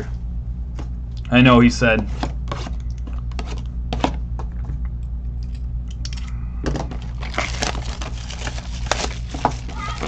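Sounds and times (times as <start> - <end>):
steady low hum: 0.0 - 10.0
plastic wrap crinkling: 6.9 - 10.0.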